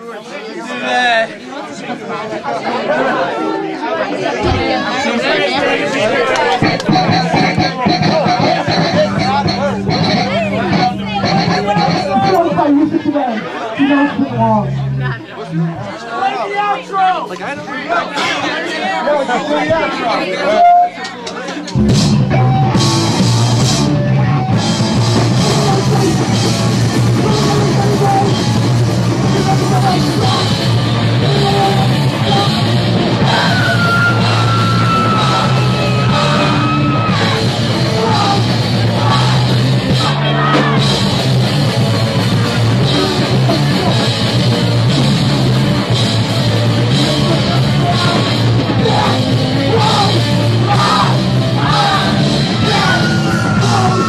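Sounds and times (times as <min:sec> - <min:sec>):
punk band playing live: 0:06.3 - 0:15.9, 0:20.6 - 0:54.0
shouted vocals: 0:23.9 - 0:41.2, 0:46.8 - 0:54.0.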